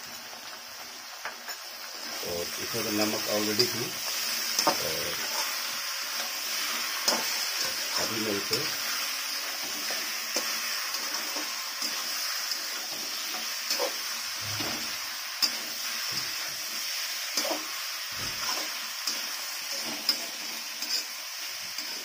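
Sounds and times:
food sizzling in a pan: 0.0s - 22.0s
spatula scraping a metal pan: 18.2s - 22.0s.

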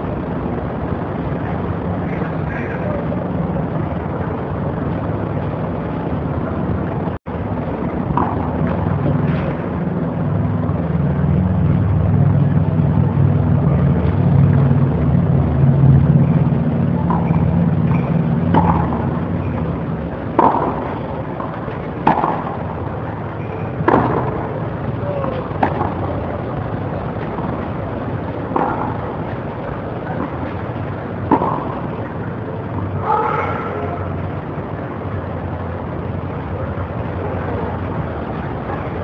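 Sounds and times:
steady low drone: 0.0s - 39.0s.

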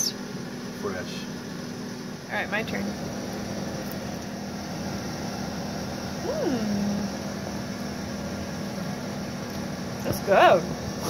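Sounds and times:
steady low hum: 0.0s - 11.0s
woman saying mmm: 6.2s - 7.1s.

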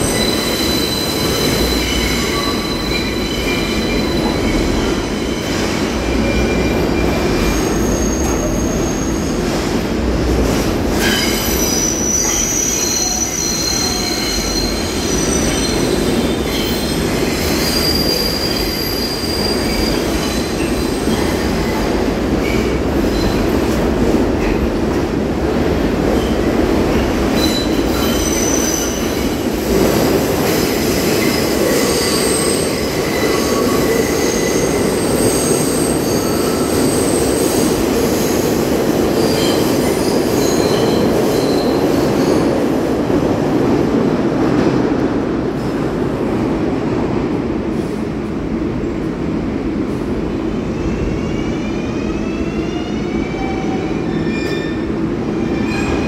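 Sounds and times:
subway train rumbling: 0.0s - 56.0s
high-pitched wheel squeals: 11.0s - 21.1s.

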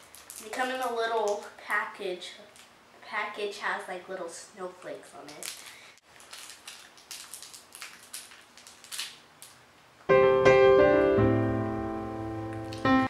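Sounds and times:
plastic wrapper crinkling: 0.0s - 1.7s, 2.5s - 2.7s, 4.8s - 9.7s, 12.5s - 12.9s
piano chords: 10.1s - 13.0s.

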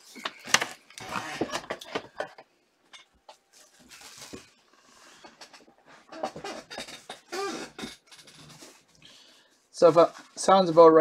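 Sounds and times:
wrappers crinkling and tearing: 3.5s - 4.6s.

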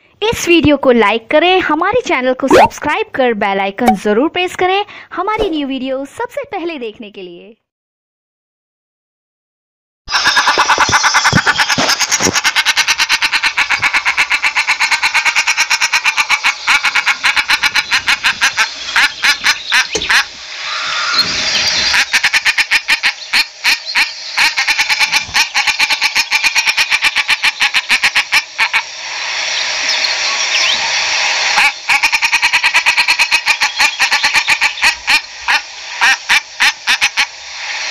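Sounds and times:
ducks calling: 10.1s - 37.9s.

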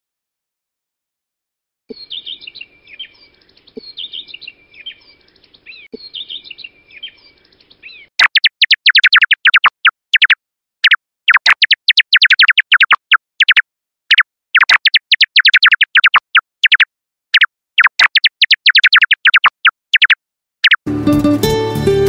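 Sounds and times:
birdsong chirps and trills: 1.9s - 20.8s
rapid downward-sweeping chirps: 8.0s - 20.8s.

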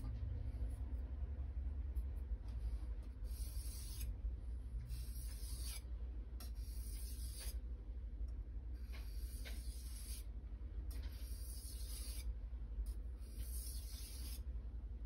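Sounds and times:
steady low hum: 0.0s - 15.0s
knife scraping on whetstone: 3.3s - 4.1s, 4.9s - 5.8s, 6.4s - 7.6s, 8.8s - 10.3s, 10.9s - 12.3s, 13.2s - 14.4s.

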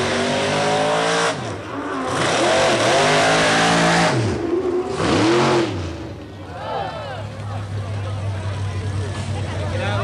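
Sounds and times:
truck engine revving hard: 0.0s - 6.2s.

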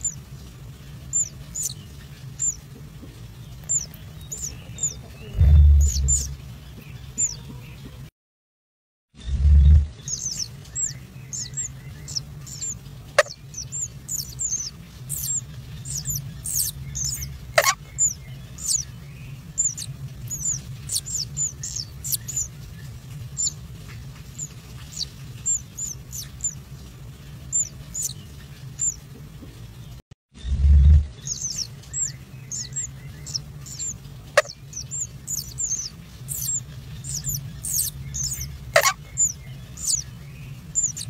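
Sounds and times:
nestlings cheeping: 0.0s - 2.7s, 3.3s - 6.4s, 9.9s - 29.0s, 31.2s - 41.0s
low steady hum: 0.0s - 8.1s, 9.2s - 41.0s
low thump: 5.4s - 6.4s.

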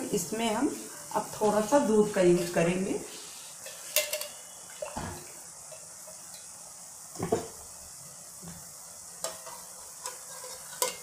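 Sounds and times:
faint frying sizzle: 0.0s - 11.0s
metal spatula scraping a pan: 1.4s - 5.1s, 9.2s - 11.0s.

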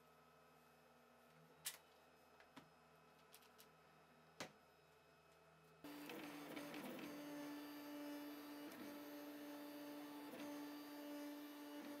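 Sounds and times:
printer stepper motors humming: 5.9s - 12.0s.

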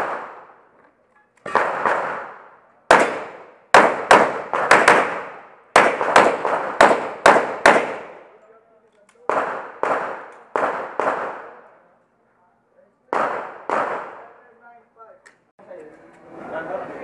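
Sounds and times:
pistol shots with echo: 0.0s - 0.6s, 1.4s - 8.4s, 9.2s - 11.7s, 13.1s - 14.4s.

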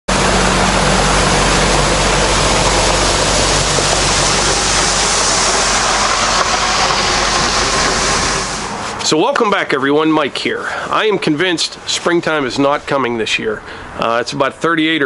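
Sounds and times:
tractor diesel engine running: 0.1s - 9.0s
loud rushing hiss: 0.1s - 13.7s.

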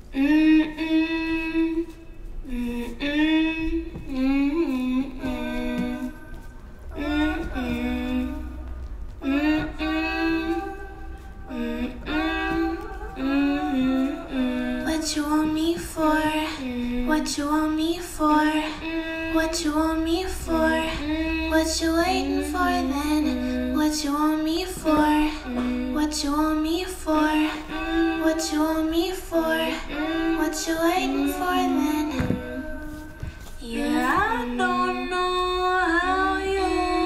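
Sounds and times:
woman singing a song: 0.0s - 37.0s.

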